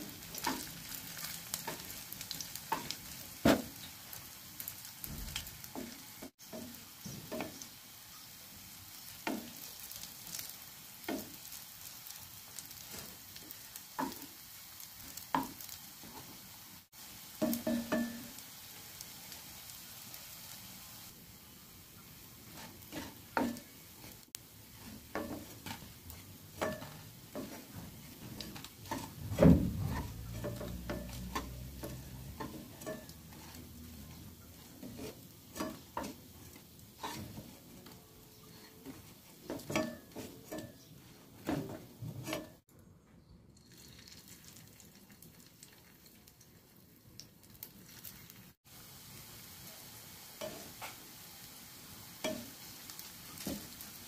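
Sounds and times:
food sizzling in hot oil: 0.0s - 42.7s, 43.6s - 54.0s
wooden spatula knocking on pan: 17.4s - 18.3s, 26.6s - 33.6s.

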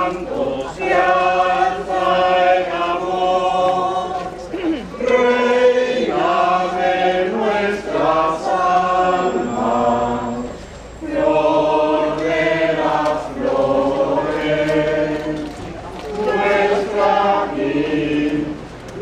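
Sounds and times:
person singing unaccompanied: 16.1s - 19.0s.

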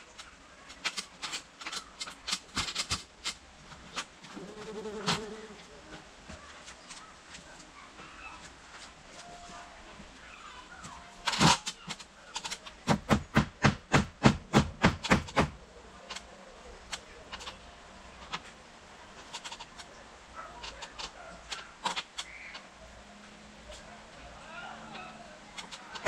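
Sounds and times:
hammer striking nails into wood: 12.8s - 15.6s.

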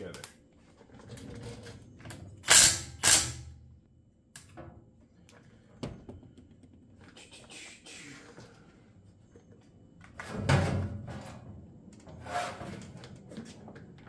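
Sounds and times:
cordless drill driving screws: 2.4s - 3.4s.

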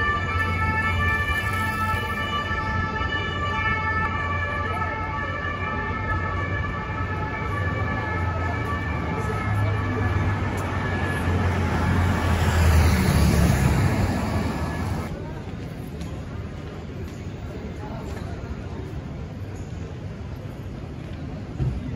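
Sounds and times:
emergency vehicle siren: 0.0s - 15.1s
city street traffic rumble: 0.0s - 21.9s.

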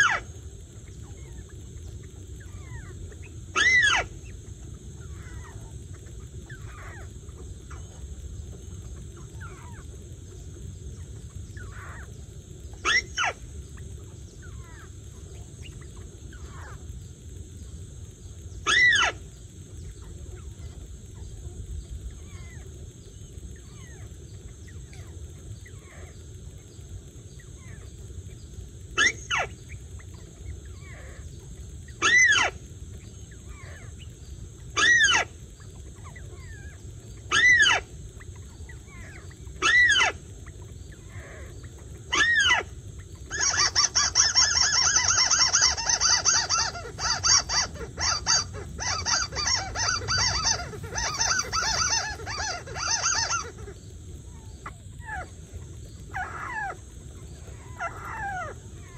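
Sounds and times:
rapid bird chattering: 0.0s - 17.0s, 18.6s - 58.9s
bird calls: 0.0s - 58.9s.

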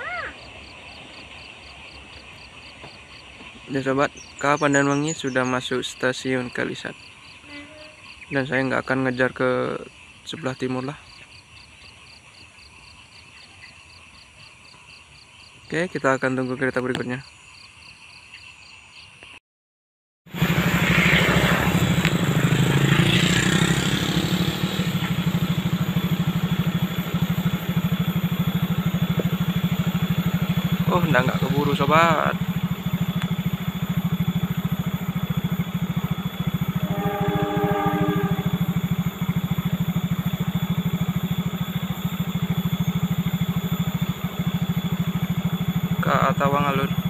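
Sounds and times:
motorcycle engine running: 0.0s - 13.4s, 20.3s - 47.0s
short horn-like tone: 7.4s - 8.1s, 36.0s - 41.0s.

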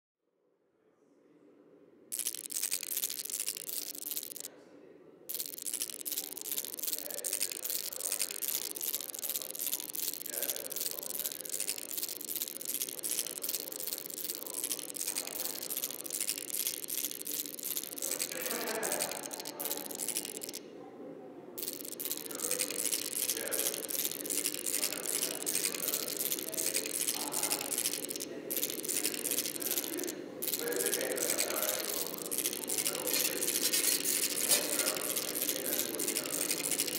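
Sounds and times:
dense rapid electronic crackle: 2.2s - 4.5s, 5.3s - 20.6s, 21.6s - 36.9s.

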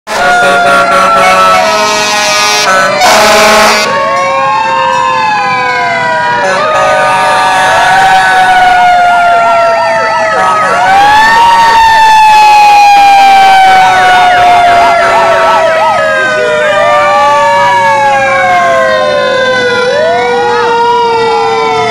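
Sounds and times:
loud horn blast: 0.1s - 4.1s, 6.4s - 7.9s, 10.3s - 10.9s, 14.6s - 16.6s
fire truck sirens wailing: 0.1s - 21.9s
siren yelp: 0.1s - 21.9s.

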